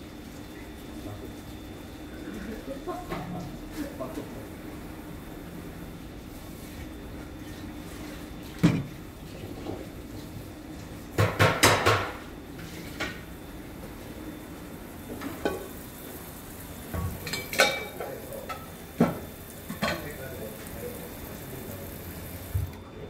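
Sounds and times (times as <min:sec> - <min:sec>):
metal utensils clinking on pots: 0:17.2 - 0:18.7.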